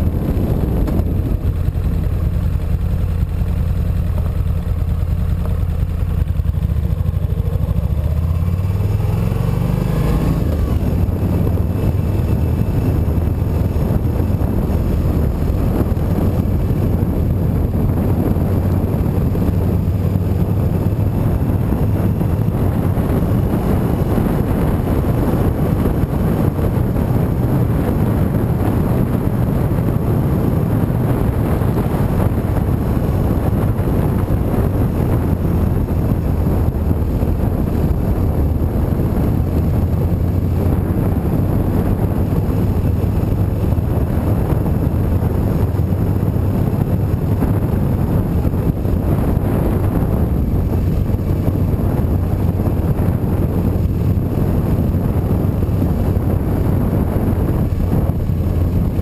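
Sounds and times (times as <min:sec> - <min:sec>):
motorcycle engine revving: 0:00.0 - 0:59.0
wind rushing over microphone: 0:00.0 - 0:59.0.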